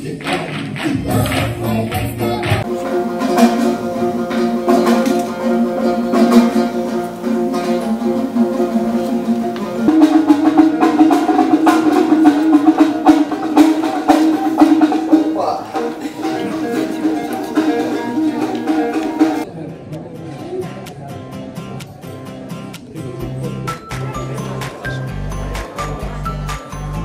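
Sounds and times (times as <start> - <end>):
strummed fretless lute: 2.6 - 19.5
strummed long-necked lute: 2.6 - 19.5.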